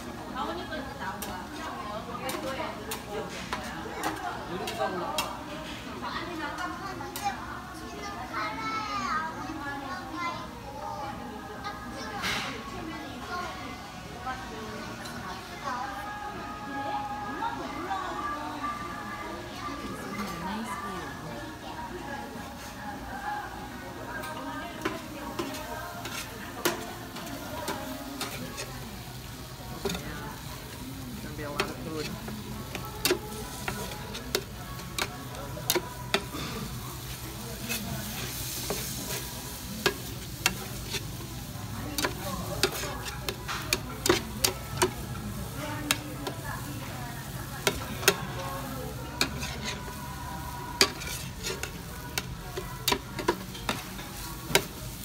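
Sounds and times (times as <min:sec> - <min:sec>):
food sizzling in a pan: 0:00.0 - 0:55.0
spatula scraping a pan: 0:24.8 - 0:55.0.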